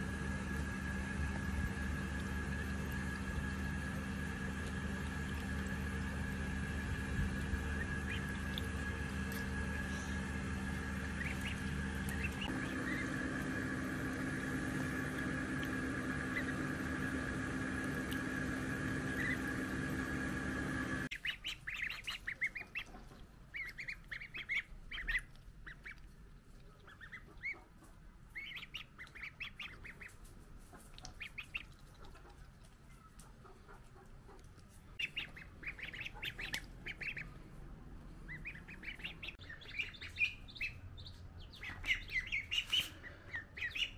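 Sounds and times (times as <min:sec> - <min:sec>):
steady hum with high whine: 0:00.0 - 0:21.4
ducklings peeping: 0:00.0 - 0:43.9.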